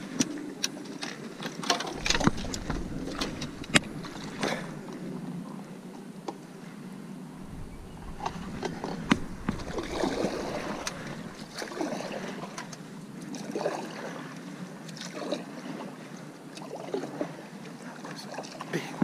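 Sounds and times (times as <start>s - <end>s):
paddle strokes in water: 0.0s - 19.0s
water splashes and drips: 1.4s - 5.2s, 7.4s - 15.8s.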